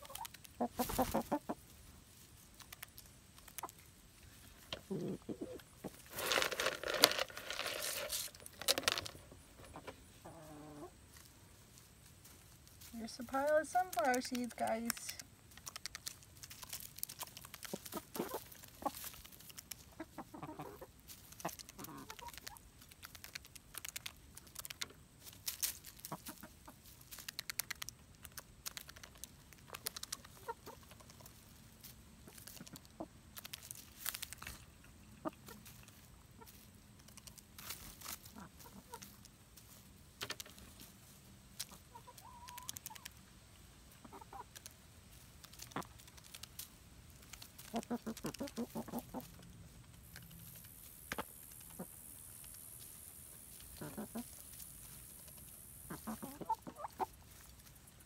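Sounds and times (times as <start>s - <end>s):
chickens pecking clicks: 0.0s - 1.5s, 2.5s - 3.9s, 13.4s - 31.5s, 32.2s - 39.4s, 40.1s - 40.8s, 41.5s - 43.3s, 44.0s - 52.9s, 53.6s - 54.4s, 55.2s - 57.5s
chickens clucking softly: 0.0s - 1.8s, 2.5s - 6.0s, 9.3s - 11.3s, 17.3s - 25.1s, 26.0s - 31.5s, 32.2s - 33.5s, 34.4s - 37.4s, 38.0s - 39.4s, 41.5s - 44.9s, 47.2s - 50.3s, 51.0s - 54.5s, 55.1s - 58.0s.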